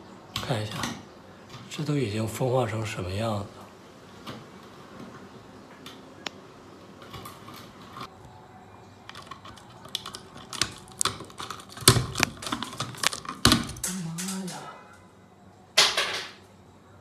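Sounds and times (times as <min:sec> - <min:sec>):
plastic light fixture parts clicking: 0:09.1 - 0:14.6.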